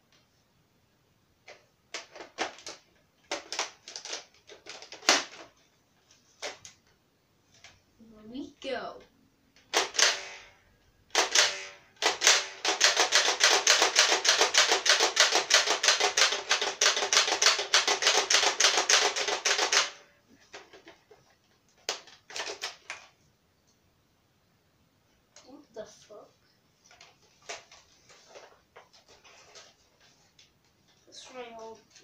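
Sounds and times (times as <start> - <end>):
toy blaster firing clicks: 9.7 - 10.5, 11.1 - 20.0.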